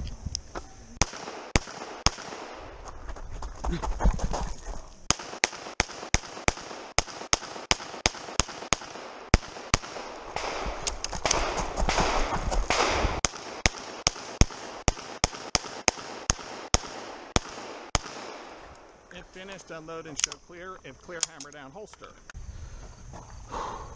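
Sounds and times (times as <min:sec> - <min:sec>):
pistol shots: 0:01.0 - 0:02.8, 0:05.1 - 0:18.9.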